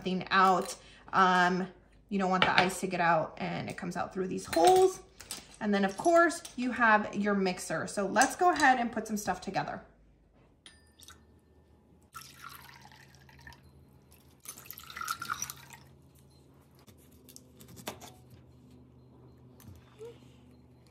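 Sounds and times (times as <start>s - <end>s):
glass clink: 10.6s - 11.6s, 12.2s - 15.9s
liquid pouring into a glass: 12.1s - 16.0s.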